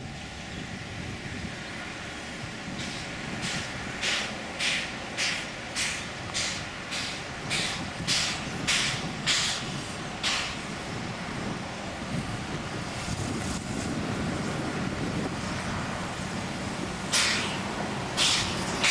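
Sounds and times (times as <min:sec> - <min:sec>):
steam locomotive chuffing: 0:00.0 - 0:18.9.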